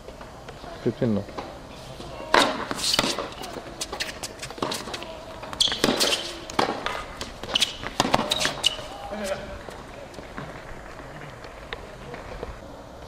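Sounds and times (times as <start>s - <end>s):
racket hitting tennis ball: 1.3s - 10.6s
shoe squeaks: 2.0s - 9.8s
ball bouncing: 2.3s - 9.0s.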